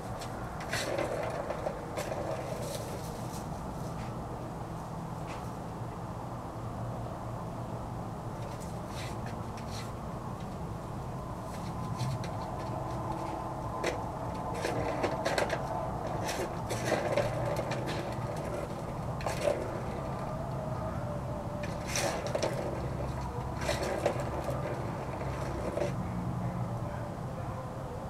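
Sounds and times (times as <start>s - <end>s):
plastic ball rattling in track: 0.2s - 3.4s, 11.9s - 20.3s, 21.6s - 26.0s.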